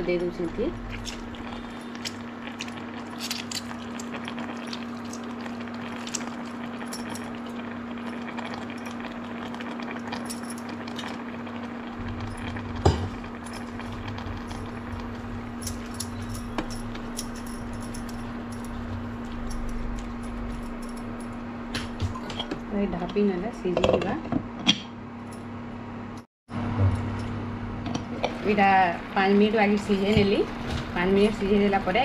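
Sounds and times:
faint sizzle: 0.0 - 21.6, 26.6 - 32.0
cooktop hum: 0.0 - 32.0
glass bangles clinking: 15.6 - 21.4.

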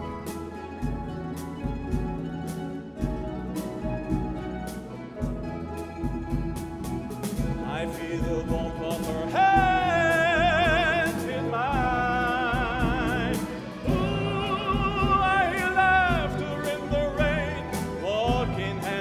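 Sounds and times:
mandolin and guitar orchestra: 0.0 - 19.0
tenor singing with vibrato: 7.5 - 19.0.

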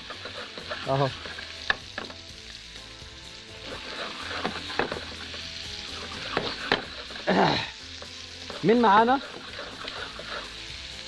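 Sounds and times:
meatballs sizzling in a pan: 0.0 - 11.0.

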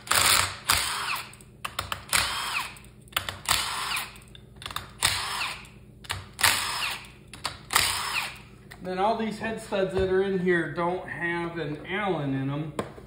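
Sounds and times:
cordless drill whining: 0.1 - 1.3, 2.2 - 2.8, 6.4 - 7.0, 7.7 - 8.4.

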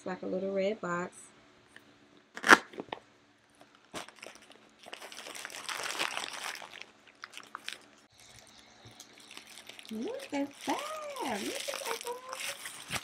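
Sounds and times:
plastic bag crinkling: 3.6 - 13.0.

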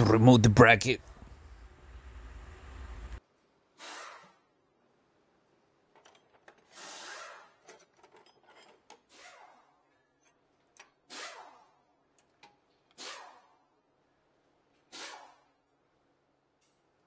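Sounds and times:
pry bar scraping and knocking metal: 7.6 - 9.1.

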